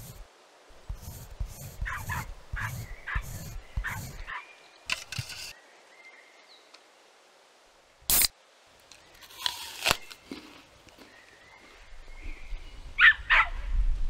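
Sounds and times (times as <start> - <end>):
biting into apple crunch: 9.2 - 11.1.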